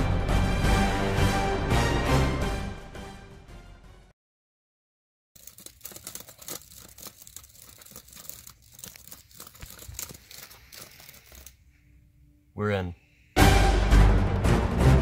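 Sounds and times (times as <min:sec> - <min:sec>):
laptop keyboard typing: 0:05.4 - 0:11.6.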